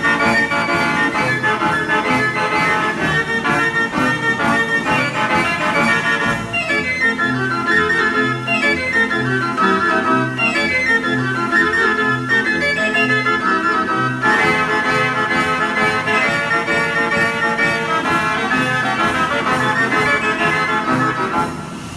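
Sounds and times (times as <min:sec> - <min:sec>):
band organ playing a tune: 0:00.0 - 0:21.9.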